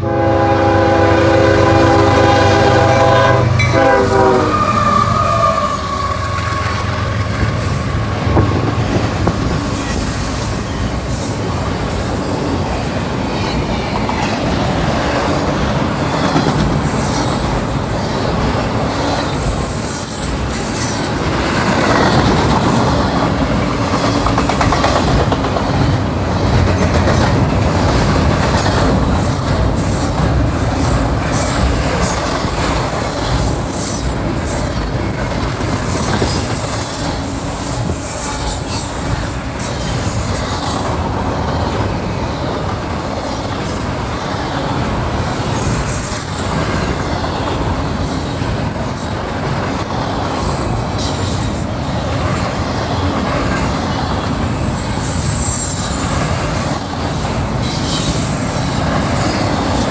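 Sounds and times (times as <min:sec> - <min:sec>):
train horn: 0:00.0 - 0:07.2
train wheels clattering on rails: 0:02.6 - 0:59.9.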